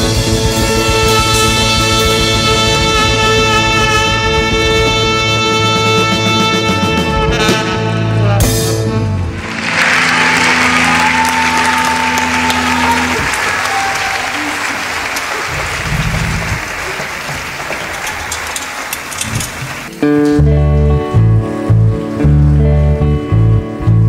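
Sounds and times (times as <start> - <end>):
live band final chord: 0.0 - 19.0
audience applauding: 9.3 - 19.9.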